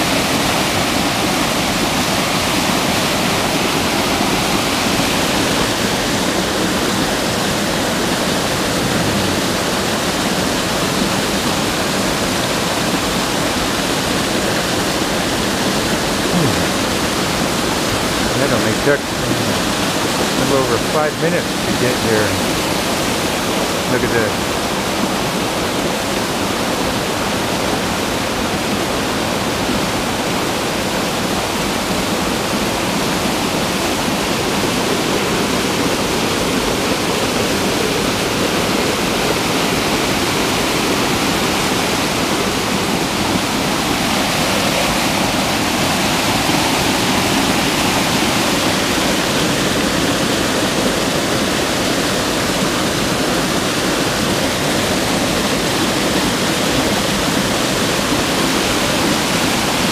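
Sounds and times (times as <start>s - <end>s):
waterfall pouring over rocks: 0.0s - 59.9s.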